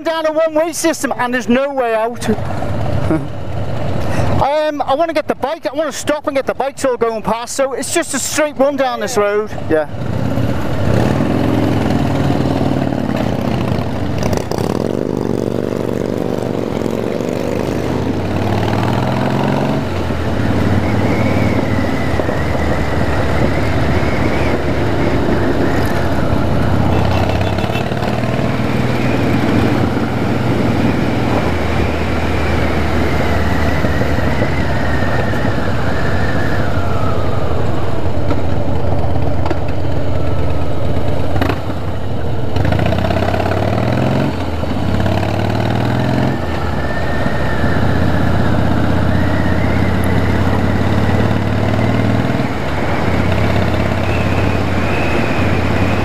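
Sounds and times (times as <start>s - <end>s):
motorcycle engine accelerating: 10.0s - 56.0s.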